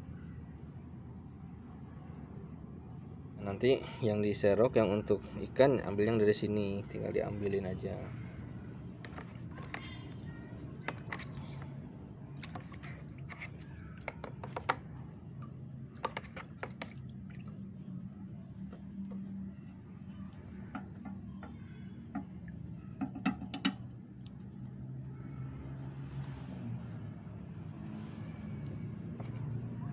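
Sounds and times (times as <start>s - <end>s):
plastic tubs clicking and tapping: 9.0s - 11.8s, 12.4s - 17.0s, 20.6s - 23.9s.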